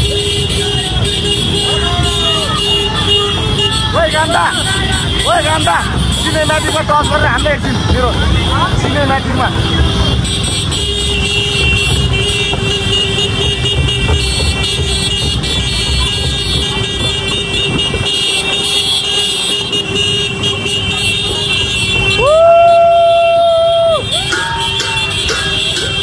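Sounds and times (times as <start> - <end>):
vehicle horn blast: 0.0 - 22.8, 23.9 - 26.0
road noise: 0.0 - 26.0.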